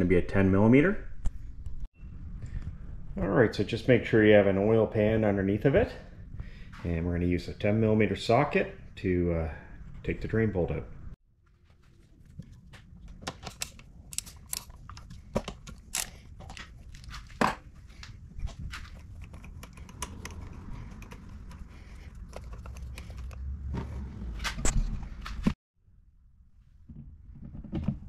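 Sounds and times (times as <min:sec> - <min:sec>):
hand handling rustle: 0:11.6 - 0:23.9.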